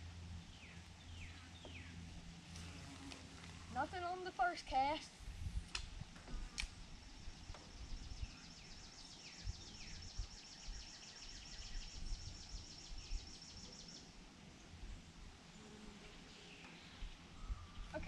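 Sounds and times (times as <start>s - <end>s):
wind rumble on microphone: 5.1s - 13.4s, 16.9s - 18.0s.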